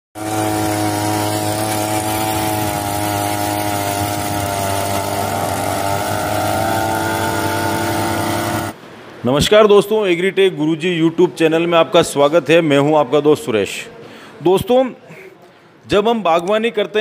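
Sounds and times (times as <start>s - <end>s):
two-stroke auger engine running: 0.2s - 8.8s.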